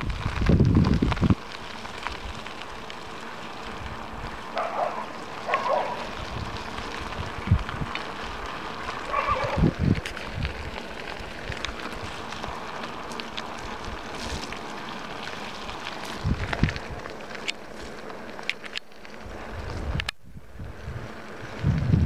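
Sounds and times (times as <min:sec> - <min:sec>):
wind buffeting microphone: 0:00.0 - 0:02.6, 0:05.5 - 0:12.3, 0:16.0 - 0:17.2, 0:19.2 - 0:22.0
hiss of tyres on wet road: 0:00.0 - 0:18.4.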